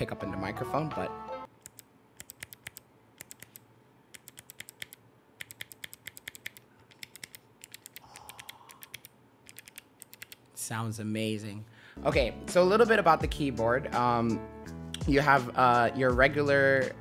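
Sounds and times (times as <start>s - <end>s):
clicky keyboard typing: 1.6s - 10.5s.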